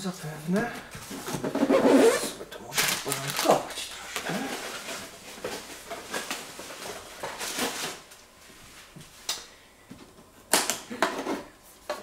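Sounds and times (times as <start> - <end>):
packaging rustling: 2.1 - 8.1.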